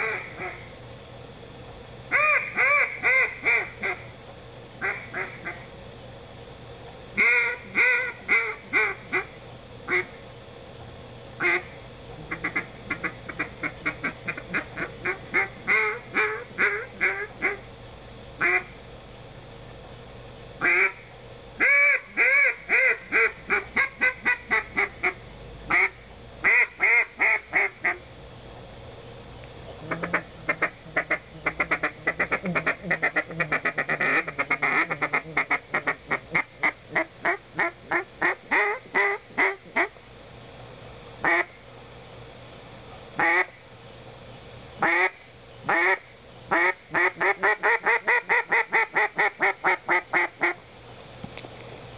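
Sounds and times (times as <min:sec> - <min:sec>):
duck call quacks: 0:00.0 - 0:00.6, 0:02.1 - 0:04.0, 0:04.8 - 0:05.6, 0:07.2 - 0:09.3, 0:09.9 - 0:10.1, 0:11.4 - 0:17.6, 0:18.4 - 0:18.7, 0:20.6 - 0:21.0, 0:21.6 - 0:28.0, 0:29.8 - 0:39.9, 0:41.2 - 0:41.5, 0:43.2 - 0:43.5, 0:44.8 - 0:50.6.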